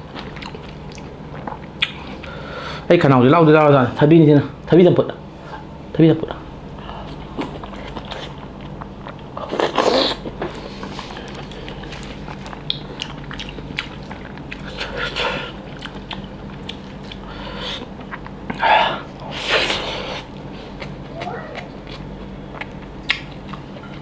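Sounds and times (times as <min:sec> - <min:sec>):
chewing with wet mouth sounds: 0:00.0 - 0:02.4, 0:07.0 - 0:19.2, 0:20.2 - 0:24.0
steady low hum: 0:00.0 - 0:24.0
loud bite into crisp food: 0:09.4 - 0:10.3.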